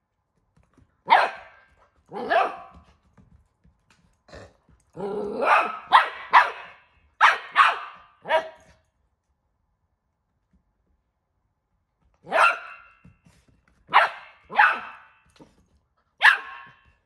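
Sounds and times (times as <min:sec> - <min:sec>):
puppy barking: 0:01.1 - 0:02.9, 0:05.1 - 0:08.7, 0:12.2 - 0:13.0, 0:13.9 - 0:15.2, 0:16.2 - 0:16.9.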